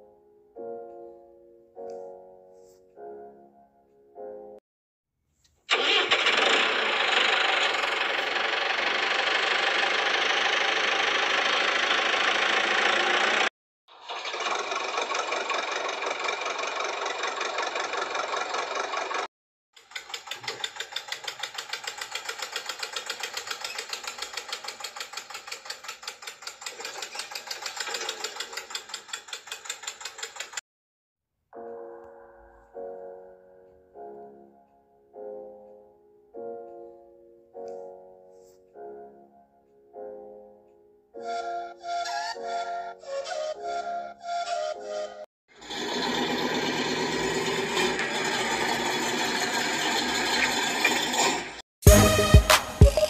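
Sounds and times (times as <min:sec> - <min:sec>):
toy motor whirring: 0:05.7 - 0:30.6.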